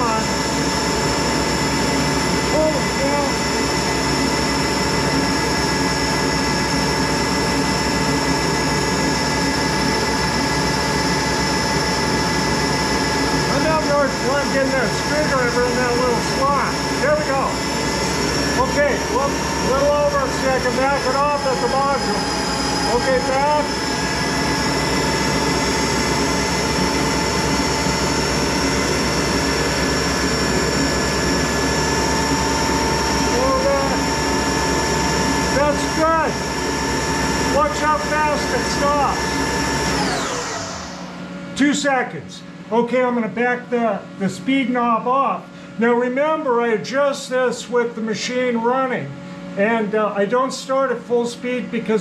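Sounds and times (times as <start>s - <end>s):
lathe running: 0.0s - 41.6s
steady high tones: 16.6s - 29.0s.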